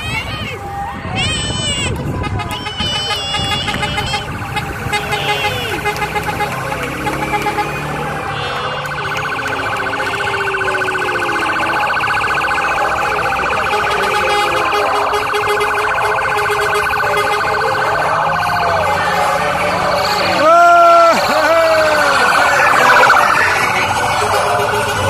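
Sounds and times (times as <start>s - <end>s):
fast-pulsing electronic siren: 6.5s - 25.0s.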